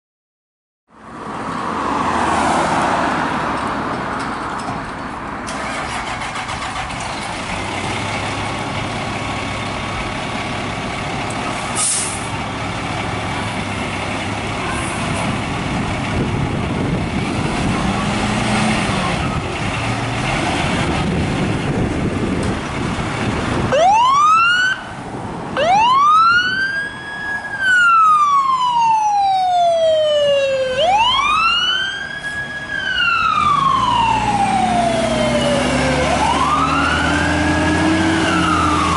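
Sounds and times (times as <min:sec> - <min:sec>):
fire truck engine running: 0:04.3 - 0:38.9
siren wailing: 0:23.7 - 0:24.9, 0:25.6 - 0:38.9.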